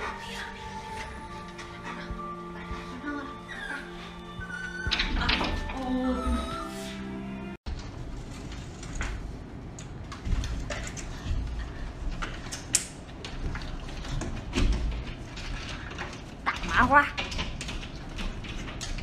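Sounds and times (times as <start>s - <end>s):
window frame clicks and creaks: 12.1s - 19.0s.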